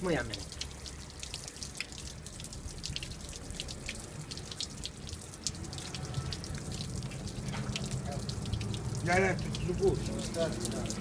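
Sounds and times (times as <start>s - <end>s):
water spattering and dripping: 0.0s - 11.0s.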